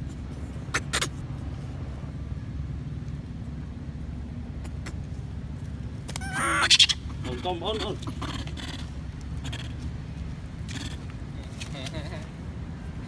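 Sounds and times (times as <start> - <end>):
vehicle engine running: 7.0 - 13.0.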